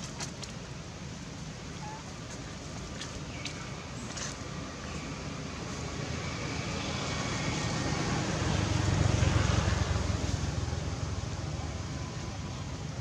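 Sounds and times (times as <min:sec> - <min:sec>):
vehicle passing by: 0:04.2 - 0:12.9.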